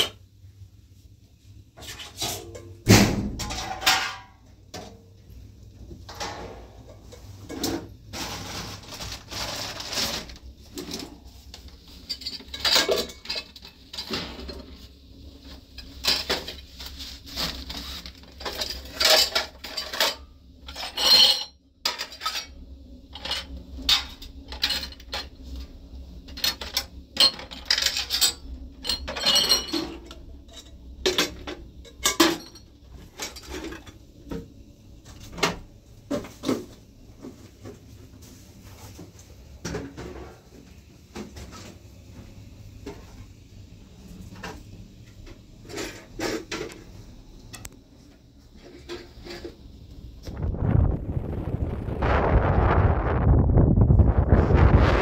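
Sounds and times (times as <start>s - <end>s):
pots and plates clanking: 1.9s - 5.0s, 6.0s - 11.2s, 11.9s - 14.8s, 15.7s - 25.4s, 26.3s - 34.5s.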